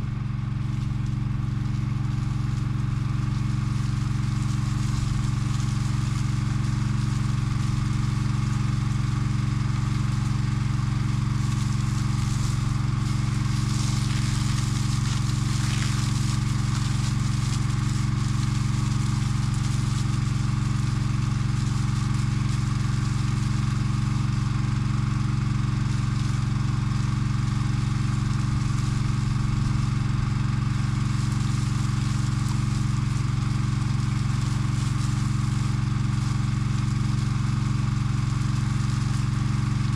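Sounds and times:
engine running steadily: 0:00.0 - 0:39.9
hiss: 0:11.4 - 0:20.2.

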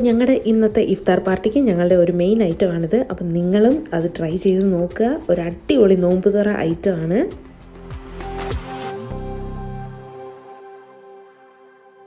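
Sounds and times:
ambient music held chords: 0:07.4 - 0:12.0.

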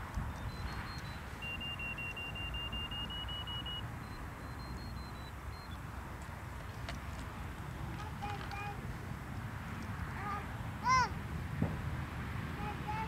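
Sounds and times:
wind rumble on microphone: 0:00.0 - 0:03.1, 0:05.8 - 0:13.0
electronic device beeps: 0:00.3 - 0:05.8.

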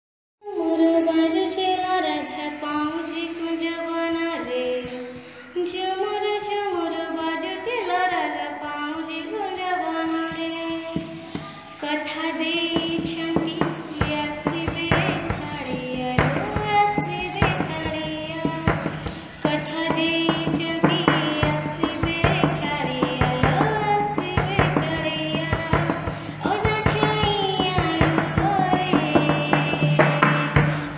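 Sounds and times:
child singing devotional song: 0:00.4 - 0:30.9
quick percussion rhythm: 0:12.4 - 0:30.9.

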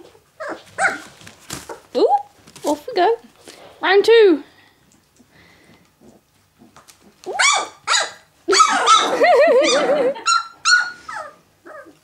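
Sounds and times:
puppies yelping and whining: 0:00.0 - 0:01.9, 0:06.0 - 0:12.0.

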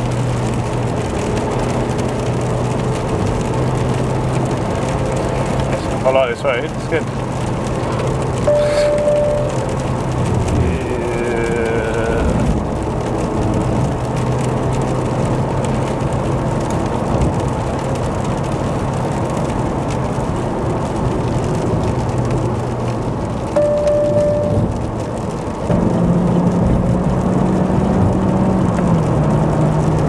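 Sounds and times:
car engine drone: 0:00.0 - 0:30.0
tyres hissing on wet road: 0:00.0 - 0:30.0
short steady beep: 0:08.4 - 0:09.7, 0:23.6 - 0:24.7.

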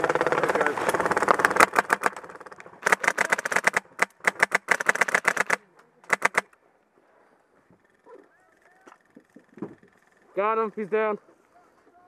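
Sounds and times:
airsoft rifle firing bursts: 0:00.0 - 0:06.5.

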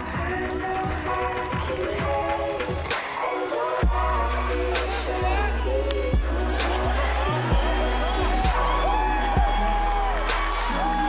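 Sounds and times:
background music with beat: 0:00.0 - 0:11.0
deep bass line: 0:03.8 - 0:11.0.

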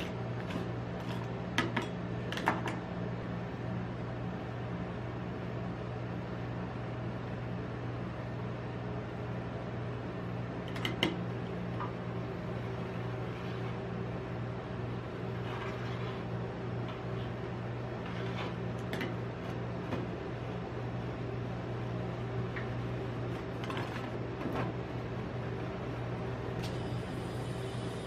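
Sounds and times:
refrigeration unit humming: 0:00.0 - 0:28.0
metal spatula scraping plate: 0:15.1 - 0:19.1.

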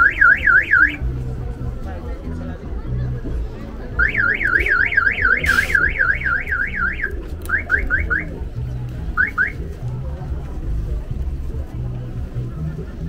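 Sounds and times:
car alarm warbling and chirping: 0:00.0 - 0:01.0, 0:04.0 - 0:08.4, 0:09.2 - 0:09.6
brief hiss: 0:05.4 - 0:05.9.

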